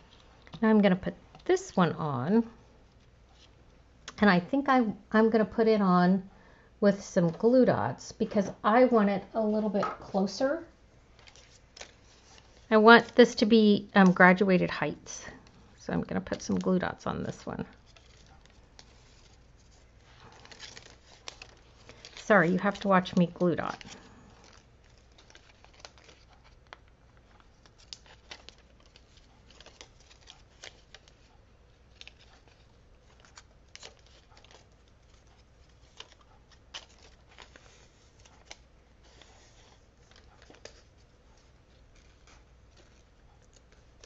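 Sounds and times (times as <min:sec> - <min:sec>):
paper clicks and crinkles: 0:11.0 - 0:44.0.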